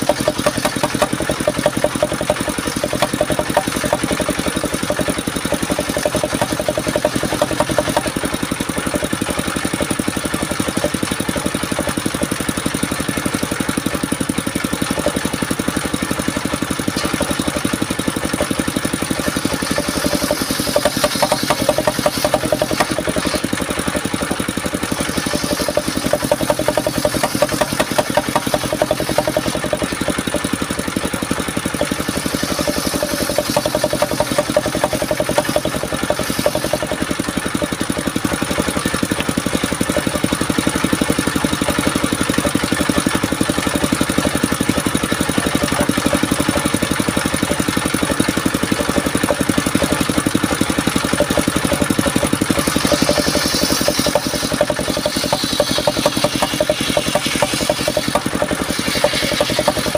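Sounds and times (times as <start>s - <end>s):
saw blade ripping wood: 0.0s - 8.8s, 19.0s - 24.2s, 24.9s - 30.6s, 31.2s - 38.5s, 48.9s - 59.9s
saw bench engine running: 0.0s - 59.9s.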